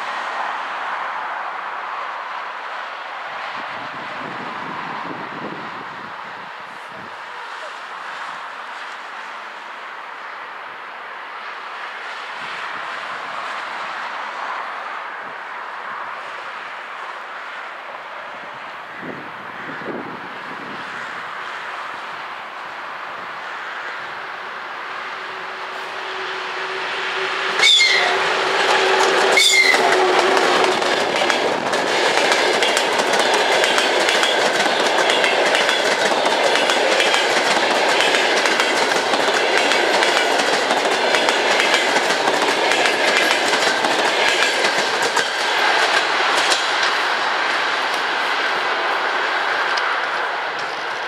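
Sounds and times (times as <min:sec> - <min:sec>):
steady tone of approaching train: 0:00.0 - 0:51.0
train wheels clacking over rail joints: 0:26.7 - 0:48.3.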